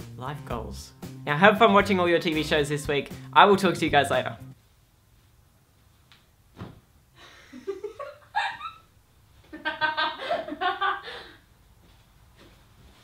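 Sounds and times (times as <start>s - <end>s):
young man's laugh-like outbursts: 7.2s - 8.9s.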